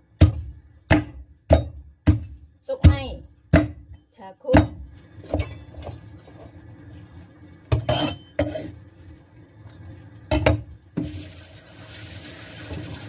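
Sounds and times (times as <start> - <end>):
kitchenware knocking and clinking: 10.3 - 10.7.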